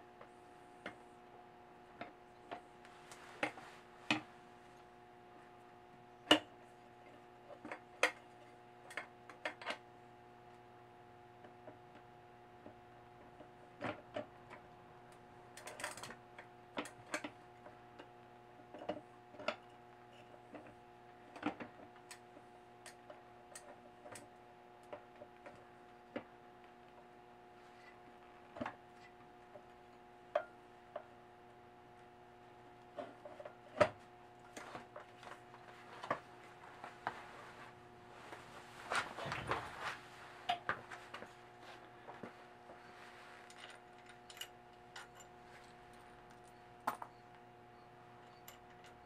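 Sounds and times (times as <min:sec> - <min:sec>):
faint steady hum: 0:00.0 - 0:49.0
small clicks and light knocks: 0:06.3 - 0:09.8, 0:11.4 - 0:27.1.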